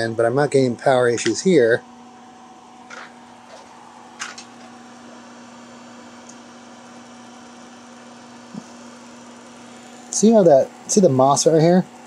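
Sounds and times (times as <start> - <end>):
power supply humming: 0.0 - 12.0.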